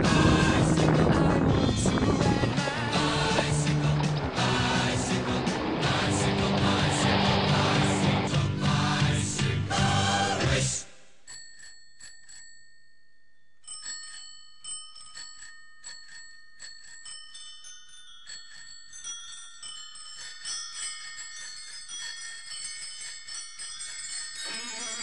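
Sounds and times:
tinkling bell-like chimes music: 11.2 - 25.0.

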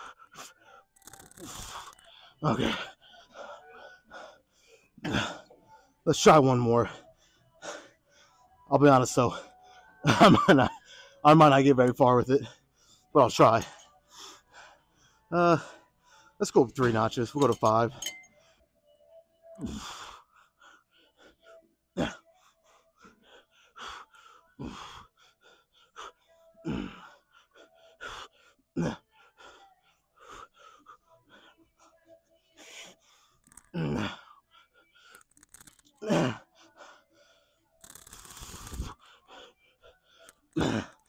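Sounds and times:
man gasping breaths: 36.0 - 41.0.

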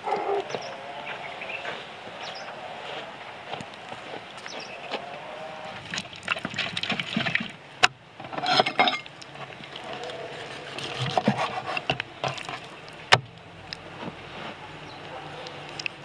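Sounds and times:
wooden spoon scraping metal bowl: 9.9 - 12.7.

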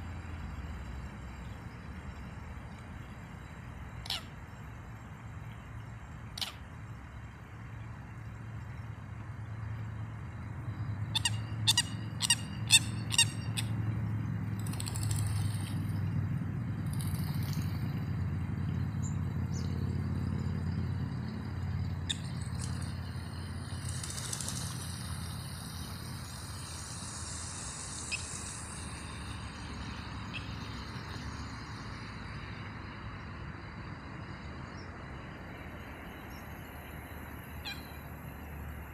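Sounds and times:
low rumble and hiss: 0.0 - 38.9
high bird calls: 4.0 - 4.4, 6.3 - 6.7, 11.0 - 13.8, 27.7 - 29.2, 37.6 - 38.0.

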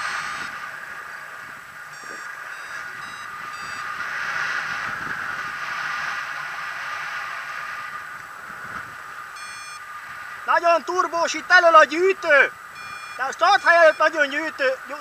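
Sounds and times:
variometer short beeps: 0.0 - 0.5, 1.9 - 3.9, 9.4 - 9.8, 12.8 - 14.2
wind rushing over microphone: 0.0 - 14.6.

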